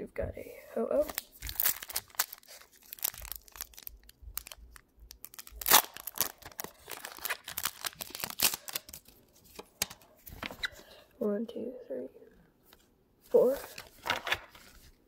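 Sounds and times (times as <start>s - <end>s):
foil wrapper tearing and crinkling: 1.0s - 9.2s.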